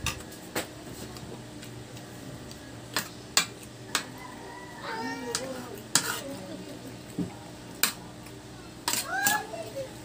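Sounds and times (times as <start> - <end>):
cutlery clinking on metal plates: 5.3 - 6.2.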